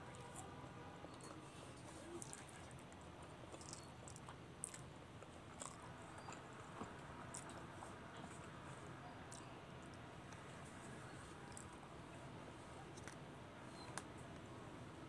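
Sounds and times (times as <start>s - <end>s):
person chewing: 1.9s - 7.6s, 11.4s - 11.8s.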